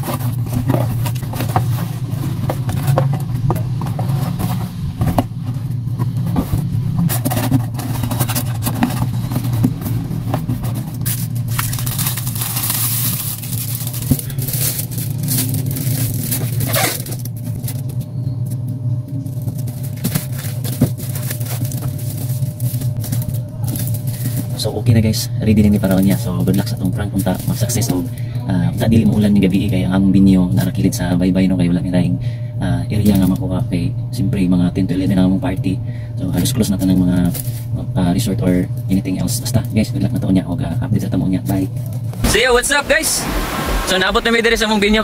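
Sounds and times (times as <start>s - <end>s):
paper and cardboard rustling: 0.0s - 18.0s, 19.3s - 24.7s
steady low hum: 0.0s - 45.0s.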